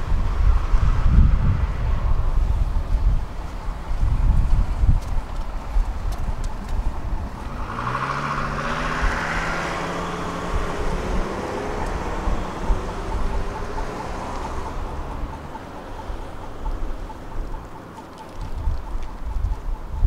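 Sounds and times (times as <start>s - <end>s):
tram electric motors whining: 8.6s - 19.6s.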